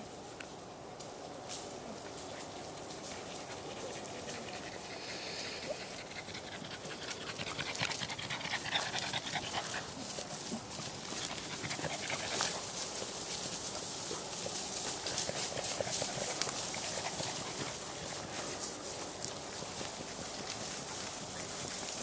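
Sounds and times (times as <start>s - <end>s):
large dog panting: 3.2s - 10.3s, 10.9s - 12.7s, 14.9s - 18.6s.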